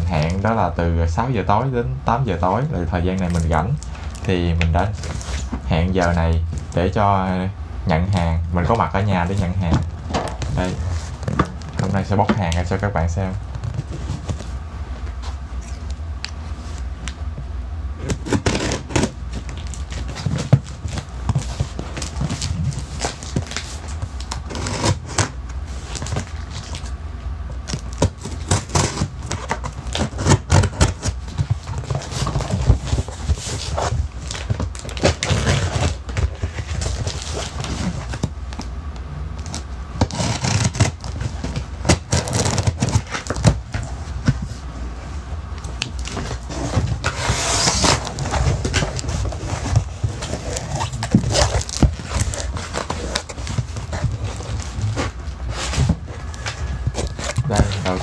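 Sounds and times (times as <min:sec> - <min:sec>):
tape and cardboard rustling: 0:03.0 - 0:06.9, 0:13.4 - 0:17.2, 0:18.0 - 0:38.7, 0:39.4 - 0:44.7, 0:45.5 - 0:58.0
scissors cutting packing tape: 0:18.0 - 0:21.0, 0:24.2 - 0:25.3, 0:27.7 - 0:31.2, 0:39.4 - 0:43.6, 0:50.1 - 0:55.1.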